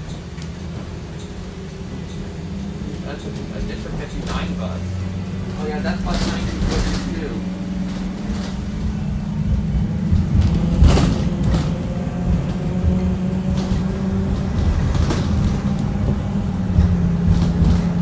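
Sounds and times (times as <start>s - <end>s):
bus engine and road rumble: 0.0s - 18.0s
sharp knocks: 10.0s - 16.1s.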